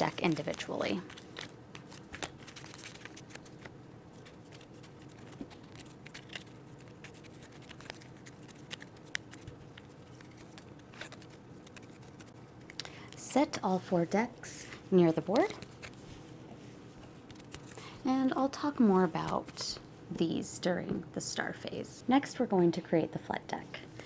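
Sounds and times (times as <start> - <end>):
cards being shuffled: 0.0 - 12.8, 15.2 - 16.2, 17.0 - 17.9.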